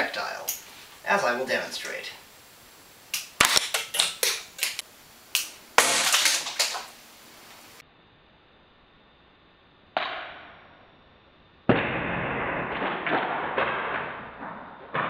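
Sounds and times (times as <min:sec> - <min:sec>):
parts clattering: 0:05.8 - 0:07.0.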